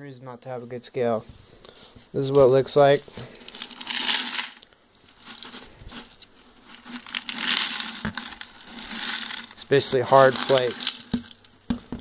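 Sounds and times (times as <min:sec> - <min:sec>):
flakes rattling in a container: 0:03.4 - 0:11.5.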